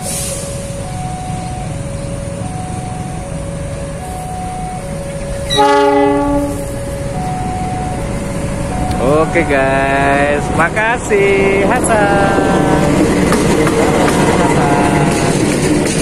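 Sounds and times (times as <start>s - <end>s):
two-note alternating tone: 0.0s - 13.2s
diesel locomotive passing: 0.0s - 16.0s
locomotive horn blast: 5.3s - 7.4s.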